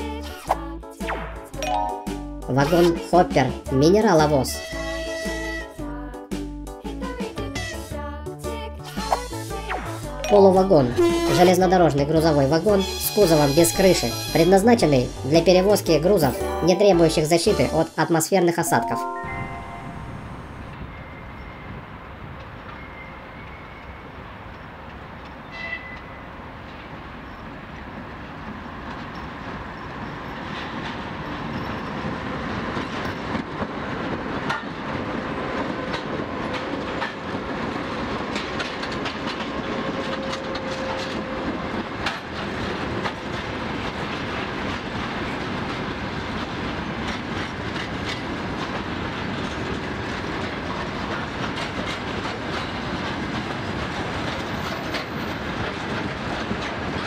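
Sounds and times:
freight train rolling past: 9.2 - 57.0
wheels clicking over rail joints: 27.7 - 57.0.

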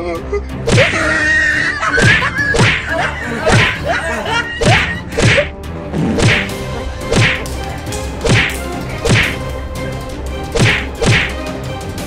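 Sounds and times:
background music: 0.0 - 12.0
whooshing punch sound effects: 5.2 - 5.5, 6.1 - 7.4, 8.2 - 9.4, 10.6 - 11.4.

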